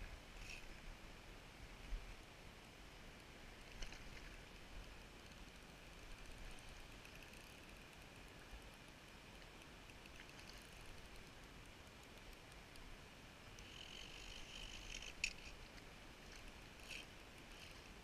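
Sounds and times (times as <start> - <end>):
fishing reel buzzing: 13.6 - 15.6
fishing reel click: 13.6 - 15.6.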